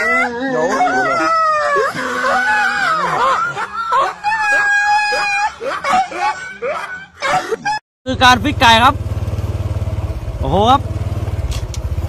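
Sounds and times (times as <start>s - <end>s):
dog howling: 0.0s - 6.1s.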